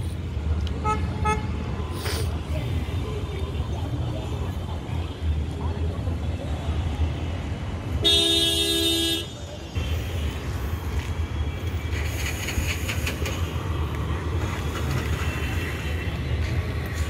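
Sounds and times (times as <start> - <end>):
low rumble of street traffic: 0.0 - 17.0
vehicle horn honking: 8.0 - 9.3.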